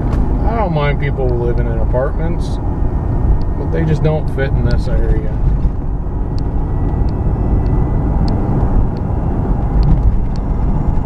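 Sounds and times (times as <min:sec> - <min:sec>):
engine and tyre rumble: 0:00.0 - 0:11.0.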